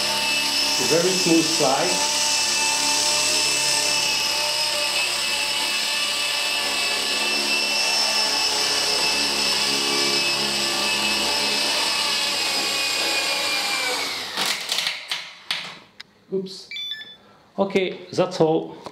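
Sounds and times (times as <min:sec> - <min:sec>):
rc helicopter rotor whine: 0:00.0 - 0:14.4.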